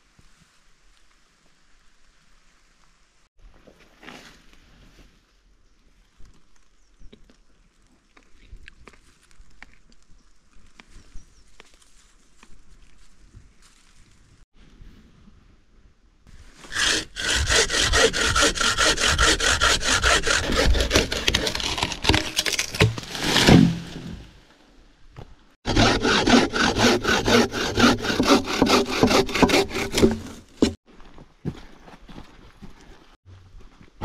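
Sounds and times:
hand saw cutting wood: 16.6s - 24.2s, 25.6s - 30.8s.

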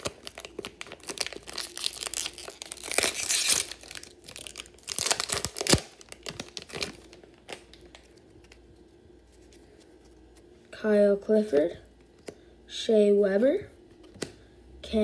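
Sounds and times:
foil wrapper tearing: 0.0s - 8.2s
foil wrapper crinkling: 0.0s - 8.7s.

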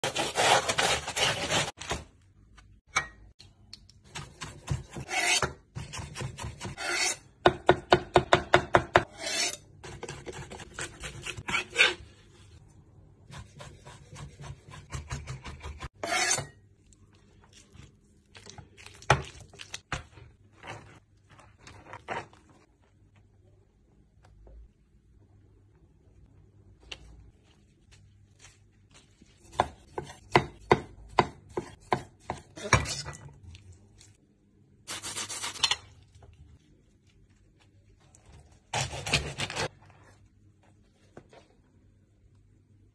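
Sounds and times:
knife sawing through bread: 0.0s - 1.8s, 5.0s - 5.5s, 6.7s - 7.2s, 16.0s - 16.4s
knife chopping on wooden board: 29.5s - 33.0s.

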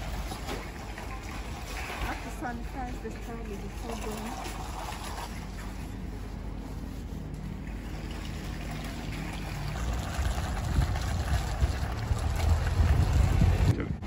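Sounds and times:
trolley wheels rumbling on tarmac: 9.6s - 13.7s
wind rumble on microphone: 9.7s - 14.0s.

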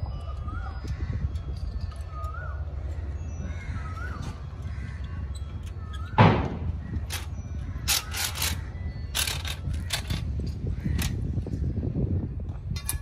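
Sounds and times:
wire scraping against steel bars: 4.2s - 10.4s
sharp metal knock: 6.2s - 6.7s.

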